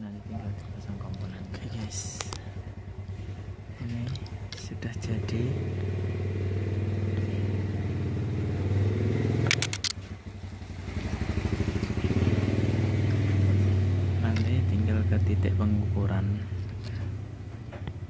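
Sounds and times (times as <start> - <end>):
small engine humming: 0.0 - 18.0
quick clicks: 9.4 - 10.0.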